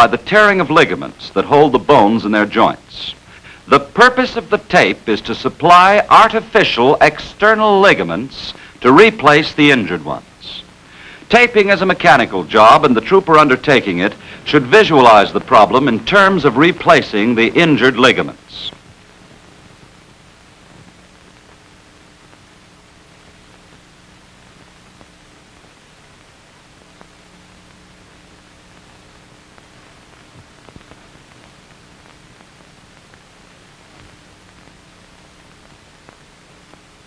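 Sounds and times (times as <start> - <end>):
film soundtrack hiss and hum: 0.0 - 37.0
faint clicks: 29.5 - 33.2.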